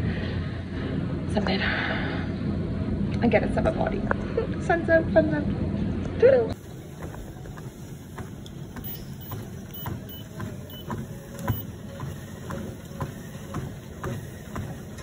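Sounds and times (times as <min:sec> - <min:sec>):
treadmill low hum: 0:00.0 - 0:15.0
footsteps on treadmill belt: 0:06.6 - 0:15.0.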